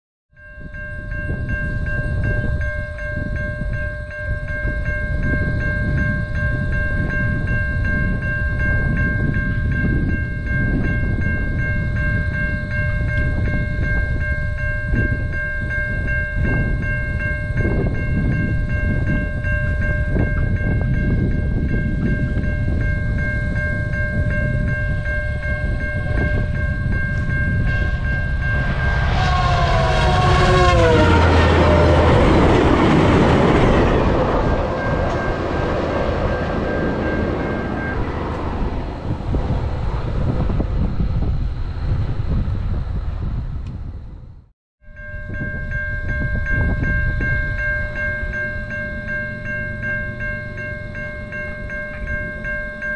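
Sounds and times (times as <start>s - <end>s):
crossing warning bell ringing: 0.3s - 42.0s, 44.8s - 52.9s
train rumble: 0.4s - 44.4s
train horn: 27.6s - 39.2s.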